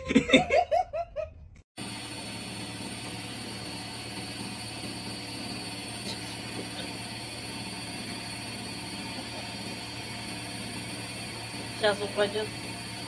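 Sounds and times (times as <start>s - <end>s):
person laughing: 0.0s - 1.4s, 9.0s - 9.7s
washing machine humming: 1.8s - 13.0s.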